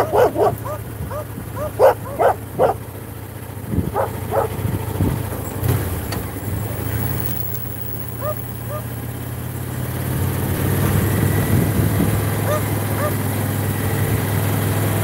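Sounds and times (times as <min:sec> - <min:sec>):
dog barking: 0:00.0 - 0:02.8, 0:03.9 - 0:04.6, 0:08.2 - 0:08.9, 0:12.4 - 0:13.2
motorcycle engine drone: 0:00.0 - 0:15.0.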